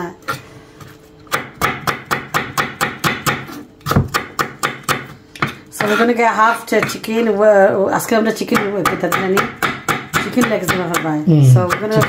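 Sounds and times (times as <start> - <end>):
knife chopping on wooden board: 1.3 - 7.0, 8.5 - 12.0.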